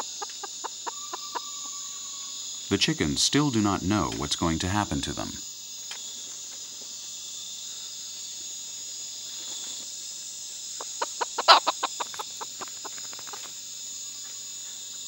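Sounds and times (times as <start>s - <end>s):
chicken clucking: 0.0s - 1.6s, 10.8s - 13.4s
crickets chirping: 0.0s - 15.0s.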